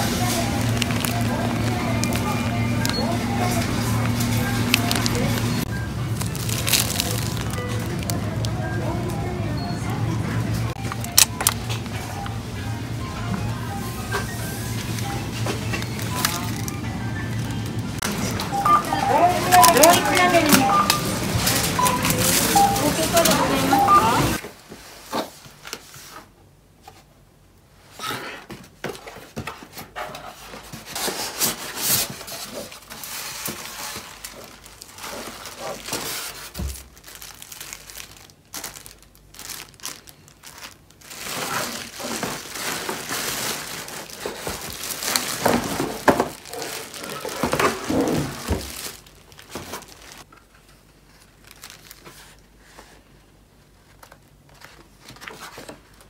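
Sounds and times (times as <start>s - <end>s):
plastic and cardboard packaging rustling: 0.0s - 9.0s, 13.6s - 27.1s, 27.8s - 56.0s.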